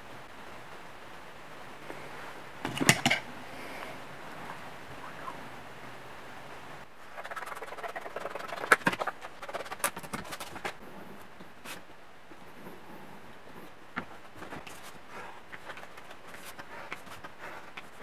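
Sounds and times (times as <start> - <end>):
faint steady hum: 0.0 - 18.0
sheet material crinkling and scraping: 7.2 - 10.8, 14.0 - 18.0.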